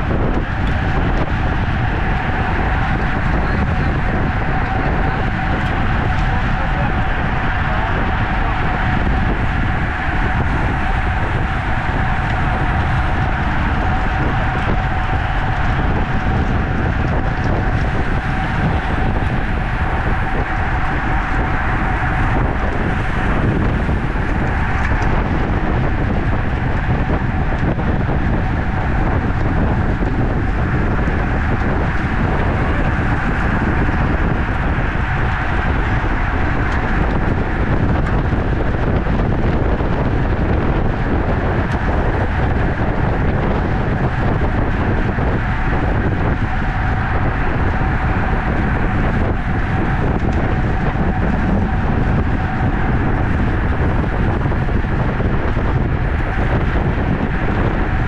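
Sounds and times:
low road rumble: 0.0s - 58.0s
thin steady whine: 0.0s - 58.0s
wind on microphone: 0.0s - 58.0s.

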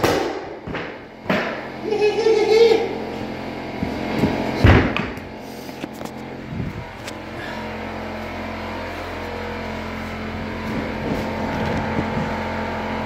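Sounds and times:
steady low hum: 0.0s - 13.0s
heavy thump: 4.2s - 5.2s.

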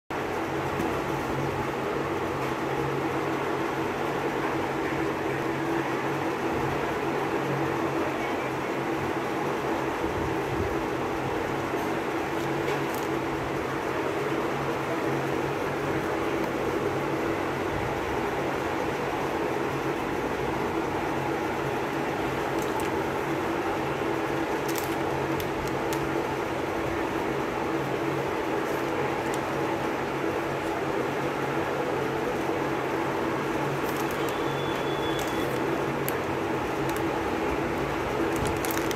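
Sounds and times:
electric fan whirring: 0.1s - 38.9s
mechanical hum with hiss: 0.2s - 38.9s
cellophane wrappers crackling: 11.6s - 13.6s, 21.6s - 27.3s, 27.9s - 31.0s, 32.1s - 38.9s.

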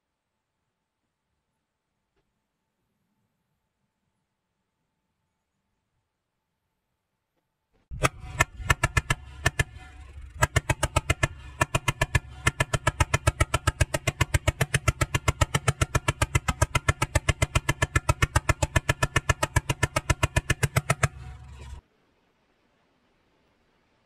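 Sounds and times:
pellet gun firing: 7.9s - 21.8s
steady low hum: 7.9s - 21.9s.

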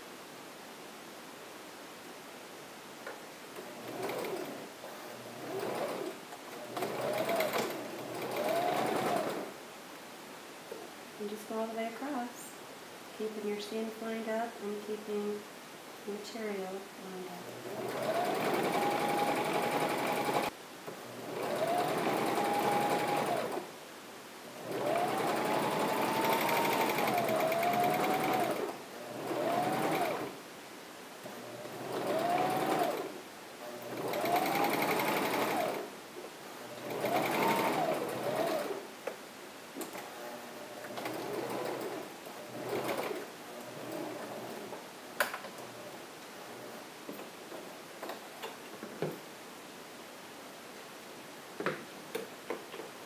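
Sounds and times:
sewing machine motor whining: 6.7s - 9.5s, 17.7s - 20.5s, 21.4s - 23.6s, 24.7s - 30.3s, 36.9s - 38.8s.

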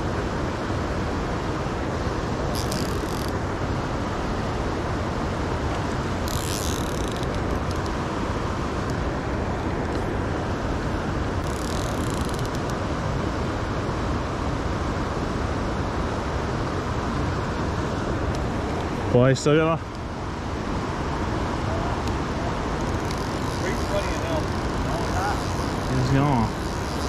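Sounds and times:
high rasps: 22.8s - 27.0s.

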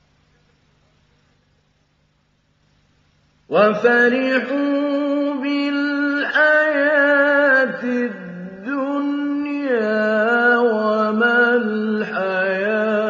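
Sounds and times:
man reciting melodically: 3.5s - 13.0s.

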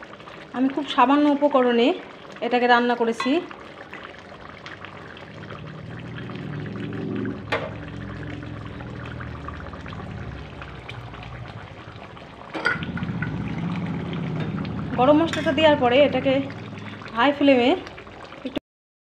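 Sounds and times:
curry bubbling in a pan: 0.0s - 18.6s
low steady hum: 4.9s - 18.4s.

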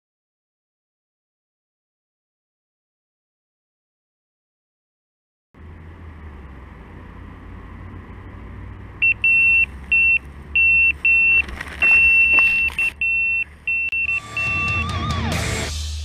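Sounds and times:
electronic bite alarm beeping: 9.0s - 15.2s.

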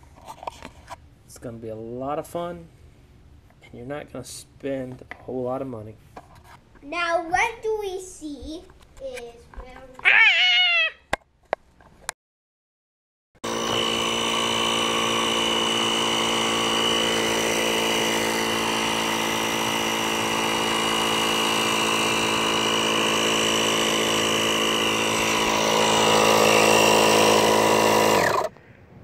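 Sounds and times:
electric air inflator running: 13.4s - 28.5s.

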